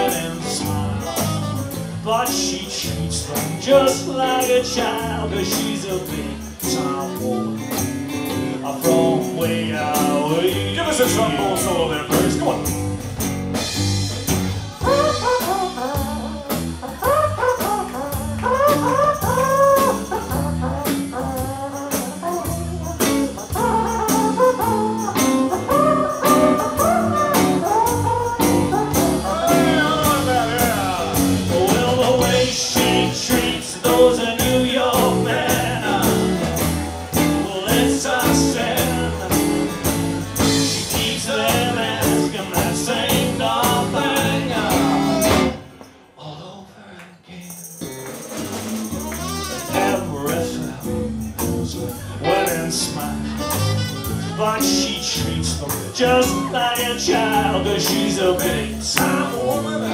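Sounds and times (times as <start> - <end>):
saxophone: 0.0 - 1.9, 14.8 - 33.0, 48.9 - 50.4, 52.3 - 55.0
man singing: 0.0 - 12.8, 21.3 - 47.9, 49.0 - 59.9
live blues band playing: 0.0 - 45.9, 47.9 - 59.9
electric guitar: 0.0 - 46.0, 47.7 - 59.9.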